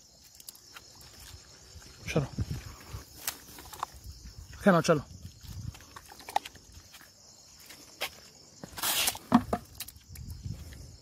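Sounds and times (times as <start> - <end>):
scoop scraping plastic bucket: 8.6 - 9.8.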